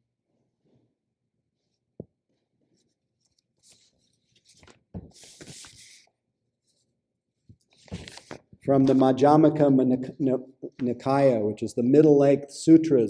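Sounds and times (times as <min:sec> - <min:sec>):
paper rustling: 0:02.8 - 0:06.1, 0:07.5 - 0:09.0.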